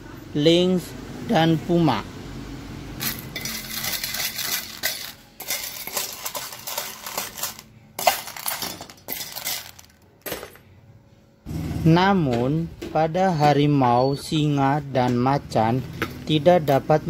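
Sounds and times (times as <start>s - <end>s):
kibble rattling in metal bowls: 3.0s - 10.6s.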